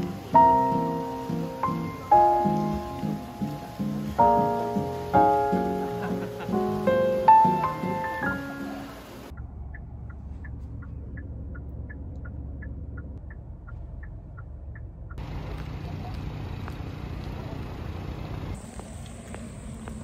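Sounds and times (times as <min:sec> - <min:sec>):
car engine and road rumble: 0:00.0 - 0:20.0
turn signal ticking: 0:09.2 - 0:17.9.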